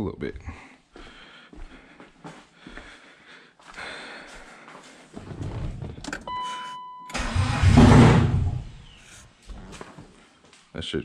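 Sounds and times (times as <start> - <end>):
electronic beep: 6.2 - 7.2
car engine cranking and firing: 7.1 - 8.8.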